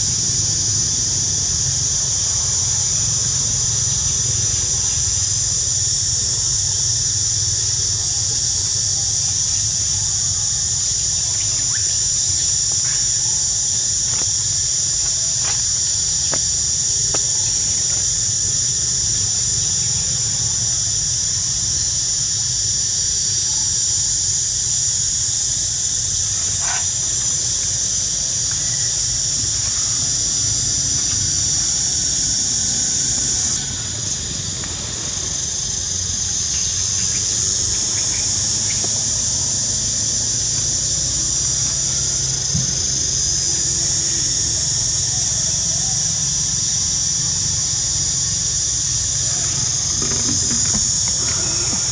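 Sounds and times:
high-pitched insect chorus: 0.0 - 51.9.

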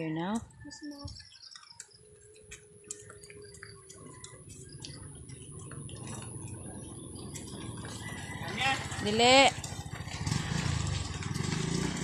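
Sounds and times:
motorcycle engine rumbling: 0.0 - 12.0
light clicks and ticks: 1.1 - 6.7.

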